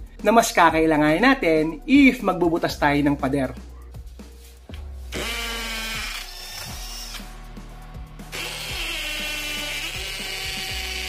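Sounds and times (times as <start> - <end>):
hammer drill boring into concrete: 5.2 - 7.2, 8.3 - 11.0.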